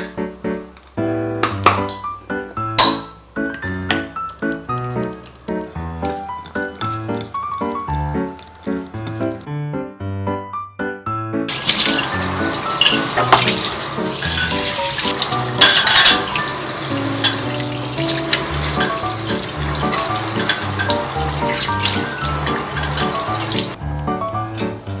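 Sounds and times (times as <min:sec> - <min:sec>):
light background music: 0:00.0 - 0:25.0
tap water running into sink: 0:11.5 - 0:23.8
dishes clinking into wire rack: 0:11.6 - 0:16.5, 0:17.2 - 0:23.8.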